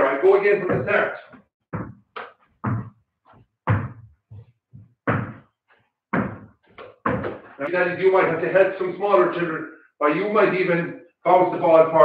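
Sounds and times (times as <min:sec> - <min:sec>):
dull thuds and knocks: 0:01.7 - 0:05.5, 0:06.1 - 0:07.6.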